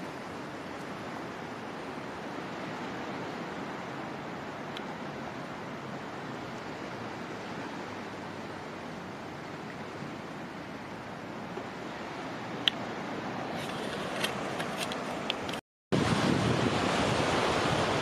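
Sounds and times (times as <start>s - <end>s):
sea surf on sandy beach: 0.0s - 18.0s.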